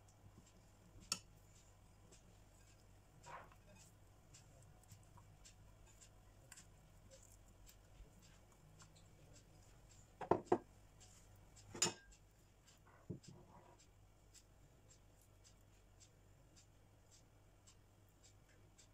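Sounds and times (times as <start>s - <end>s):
sharp taps on glass dish: 10.2s - 10.7s, 11.7s - 12.1s.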